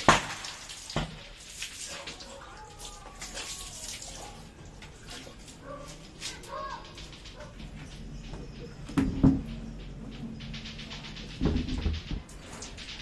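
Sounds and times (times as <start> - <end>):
water splashing into glass tank: 0.0 - 6.5.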